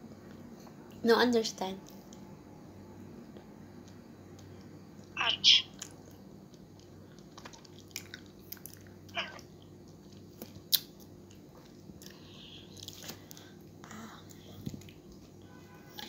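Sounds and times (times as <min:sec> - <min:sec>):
faint low hum: 0:00.0 - 0:16.0
person chewing with wet smacks: 0:05.8 - 0:13.2, 0:14.3 - 0:15.3.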